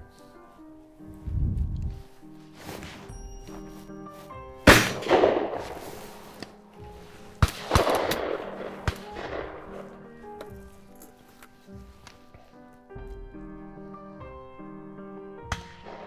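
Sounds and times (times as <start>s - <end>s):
background music: 0.0s - 16.0s
shotgun shots echoing: 4.6s - 6.2s, 7.4s - 10.2s, 15.5s - 16.0s.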